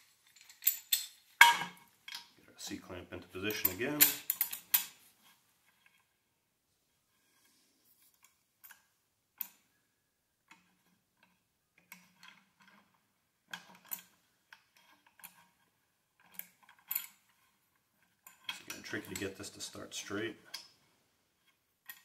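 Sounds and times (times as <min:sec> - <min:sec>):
metallic clicks and clinks: 0:00.2 - 0:02.4, 0:03.5 - 0:05.0, 0:16.2 - 0:20.8.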